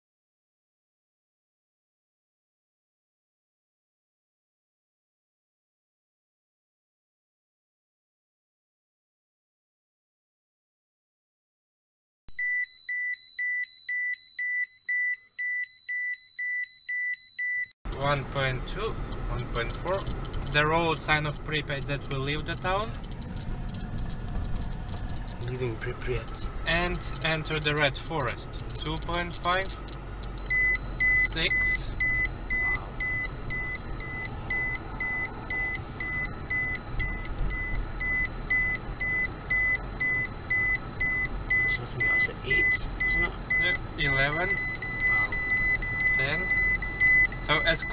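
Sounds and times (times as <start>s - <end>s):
high alarm beeps: 12.3s - 47.9s
car road noise rumble: 17.9s - 47.9s.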